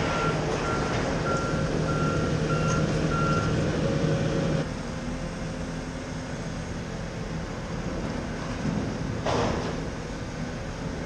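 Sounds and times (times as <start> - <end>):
excavator travel alarm beeping: 0.0 - 3.6
diesel engine running: 0.0 - 11.0.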